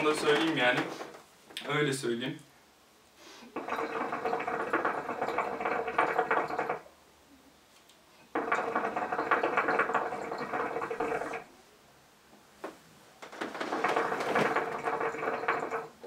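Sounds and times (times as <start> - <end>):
hookah water gurgling: 3.5 - 6.9, 8.2 - 11.5, 13.4 - 16.0.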